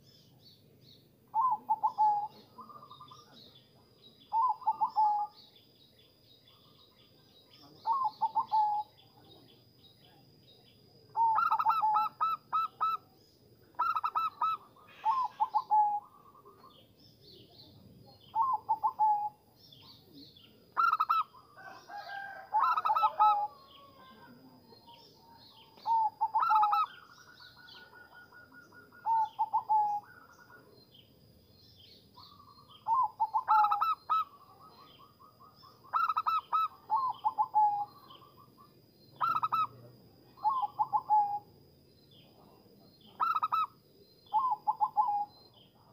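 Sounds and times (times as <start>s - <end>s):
doves cooing: 1.3s - 3.3s, 4.3s - 5.4s, 7.8s - 9.0s, 11.1s - 13.1s, 13.8s - 16.8s, 18.2s - 19.4s, 20.6s - 30.8s, 32.2s - 41.5s, 43.0s - 45.4s.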